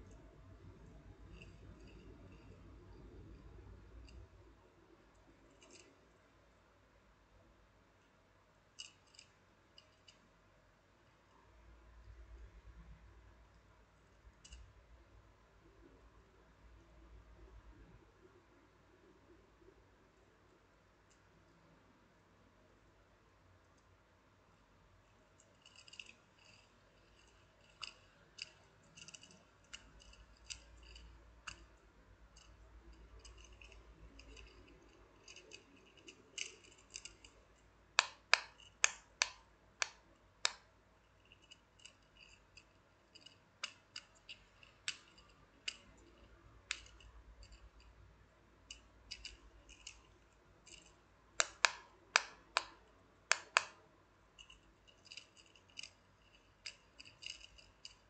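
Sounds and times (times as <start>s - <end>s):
silicone fidget toy clicking: 25.4s - 40.7s, 41.4s - 48.0s, 48.7s - 53.8s, 54.4s - 58.0s.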